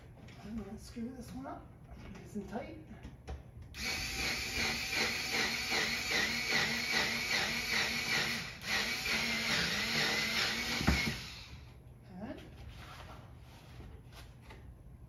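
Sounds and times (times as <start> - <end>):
electric screwdriver motor running: 3.8 - 11.6.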